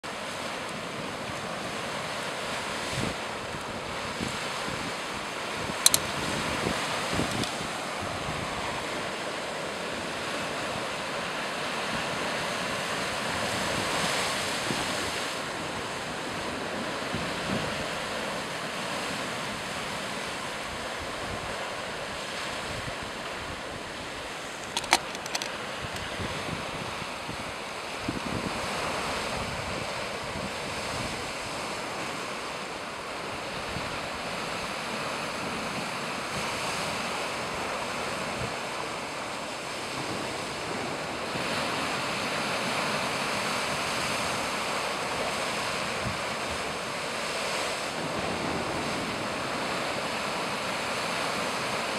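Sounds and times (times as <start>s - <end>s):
small waves washing on beach: 0.0s - 51.9s
wind: 0.0s - 51.9s
sharp click: 5.8s - 6.1s, 24.6s - 26.0s.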